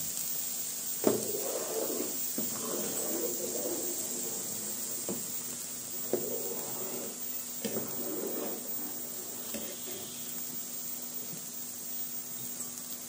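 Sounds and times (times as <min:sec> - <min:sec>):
steady hiss: 0:00.0 - 0:13.0
ladle stirring liquid in pot: 0:01.0 - 0:10.2.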